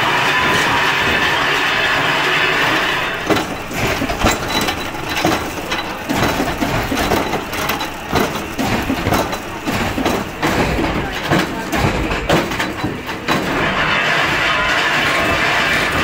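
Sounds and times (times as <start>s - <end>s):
machinery whine: 0.0s - 16.0s
wood knocking and clattering: 3.2s - 13.6s.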